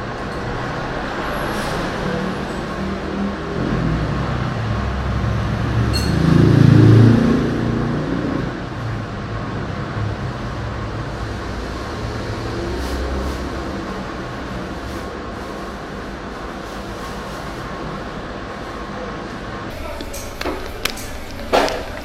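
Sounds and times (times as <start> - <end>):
heavy vehicle passing: 0.0 - 22.0
street traffic rumble: 0.0 - 22.0.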